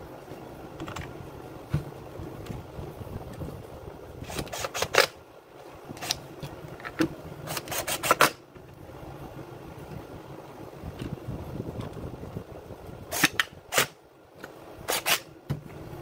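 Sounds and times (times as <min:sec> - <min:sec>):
parts clicking and scraping: 0:00.7 - 0:01.8, 0:04.2 - 0:05.2, 0:05.9 - 0:08.8, 0:13.1 - 0:15.3.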